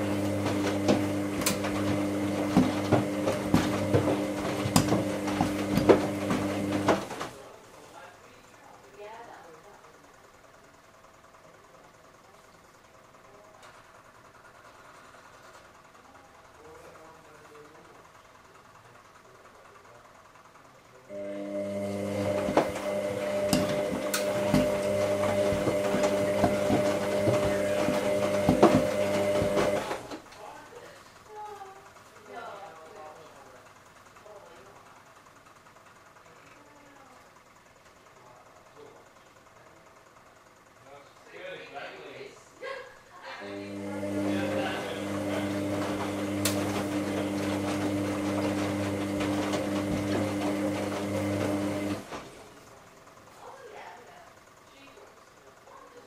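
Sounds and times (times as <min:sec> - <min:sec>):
washing machine humming: 0:00.0 - 0:56.0
knocks and clicks: 0:22.4 - 0:30.0.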